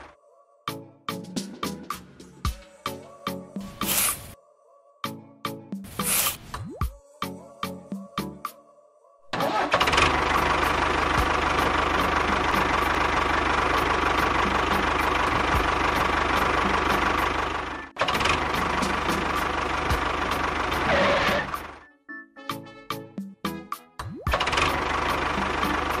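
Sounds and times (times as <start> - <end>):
model tractor engine running: 9.4 - 21.8, 24.3 - 26.0.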